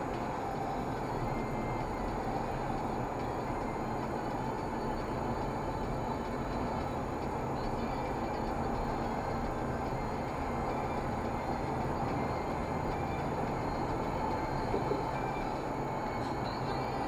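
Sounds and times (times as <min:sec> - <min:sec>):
car road and engine noise: 0:00.0 - 0:17.0.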